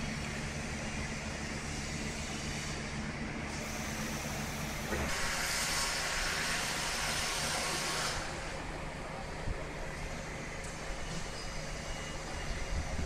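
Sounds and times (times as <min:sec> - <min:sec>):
engine running low: 0:00.0 - 0:13.0
loud rushing hiss: 0:01.8 - 0:08.6.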